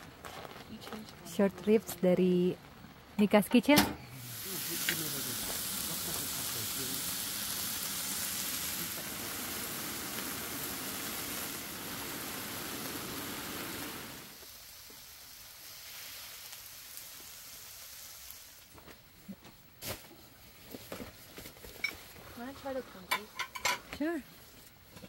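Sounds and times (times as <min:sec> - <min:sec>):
rain on a tent: 0:00.0 - 0:01.6, 0:04.2 - 0:18.7
meat sizzling on a griddle pan: 0:04.2 - 0:18.9.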